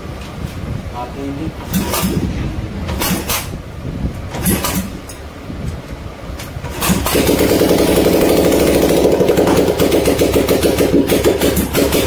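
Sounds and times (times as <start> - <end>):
single-cylinder engine running: 6.4 - 12.0.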